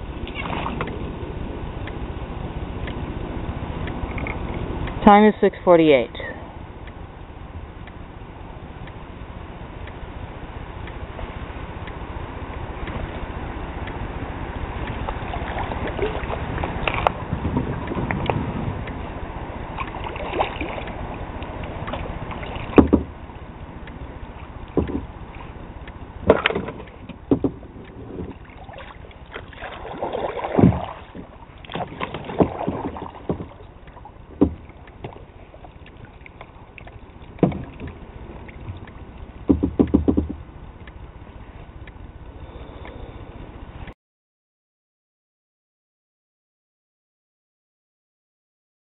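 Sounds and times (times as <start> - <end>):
kayak knocking and scraping on logs: 21.9 - 23.1, 24.7 - 25.1, 26.3 - 28.4, 29.4 - 33.8, 34.4 - 35.3, 37.3 - 38.8, 39.4 - 40.4.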